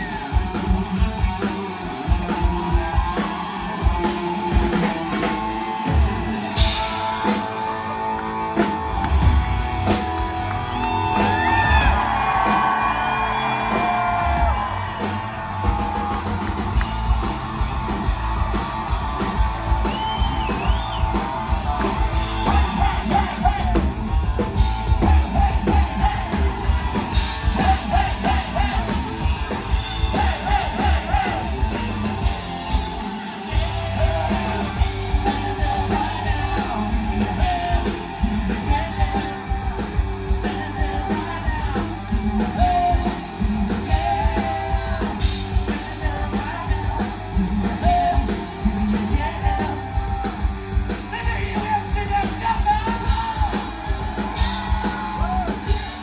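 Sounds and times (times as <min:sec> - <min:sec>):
rock band playing: 0:00.0 - 0:56.0
person singing: 0:21.8 - 0:24.0, 0:24.8 - 0:29.1, 0:33.0 - 0:56.0.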